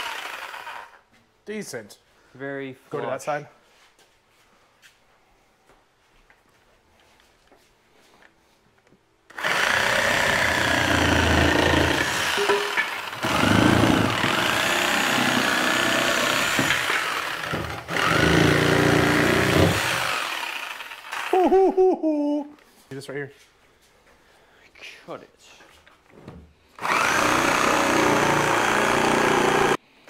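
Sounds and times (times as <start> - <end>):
reciprocating saw cutting wood: 0.0 - 1.0, 9.3 - 21.4, 26.8 - 29.8.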